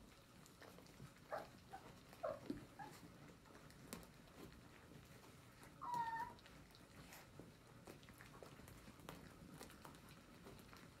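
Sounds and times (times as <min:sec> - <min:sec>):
puppies smacking and lapping: 0:00.0 - 0:11.0
puppy squeak: 0:05.8 - 0:06.4.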